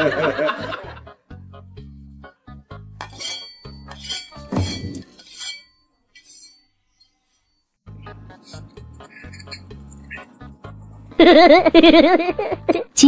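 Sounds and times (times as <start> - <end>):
chopsticks clinking on ceramic bowl: 3.0 - 6.6.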